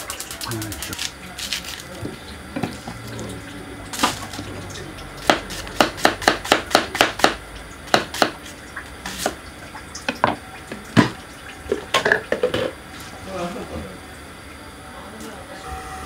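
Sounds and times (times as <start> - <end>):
knife chopping on wooden board: 5.2 - 8.4.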